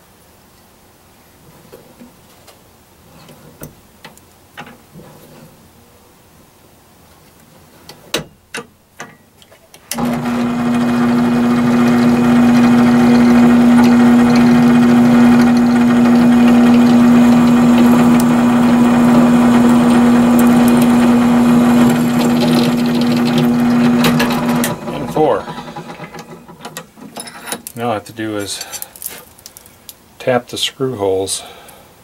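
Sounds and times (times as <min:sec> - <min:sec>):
drill press motor humming: 0:10.0 - 0:26.6.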